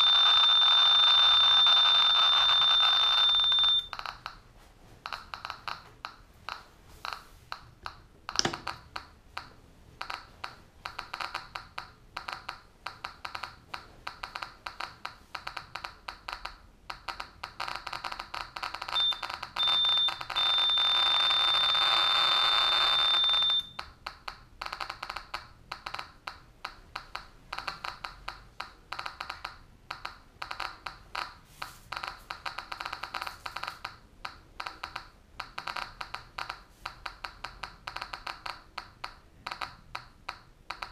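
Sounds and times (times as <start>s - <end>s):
high steady warning beep: 0.0s - 4.0s, 18.9s - 23.8s
geiger counter clicking: 0.0s - 4.4s, 5.0s - 40.9s.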